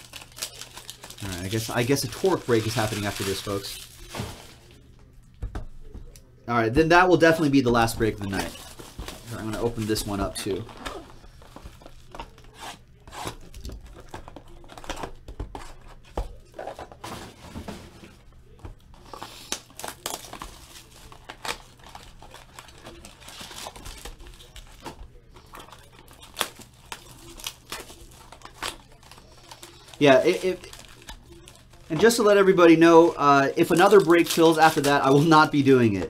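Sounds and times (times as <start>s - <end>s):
plastic wrap ripping: 0.0s - 4.8s, 8.2s - 15.7s, 18.9s - 35.7s
plastic wrap crinkling: 0.0s - 4.9s, 7.2s - 17.4s, 18.4s - 36.0s.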